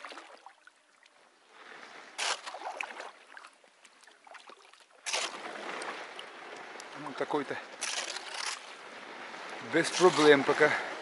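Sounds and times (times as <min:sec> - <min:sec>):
paddle splash: 0:00.0 - 0:11.0
hull crunching through ice: 0:05.0 - 0:05.8, 0:07.8 - 0:08.8, 0:09.8 - 0:10.6
ice crackling: 0:07.8 - 0:08.8.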